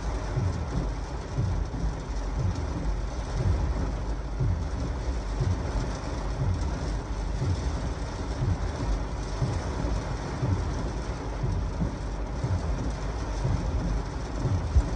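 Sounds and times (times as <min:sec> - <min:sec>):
heavy rain drumming on car roof: 0:00.0 - 0:14.9
low thump: 0:11.4 - 0:14.9.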